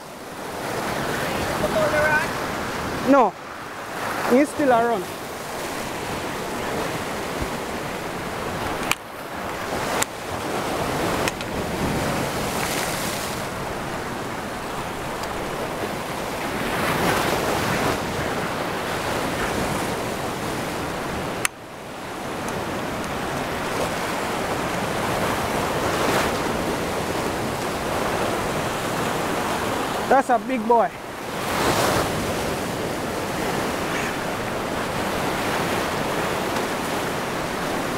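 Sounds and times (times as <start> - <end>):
surf breaking over rocks: 0.0 - 37.9
wind on microphone: 31.0 - 37.9.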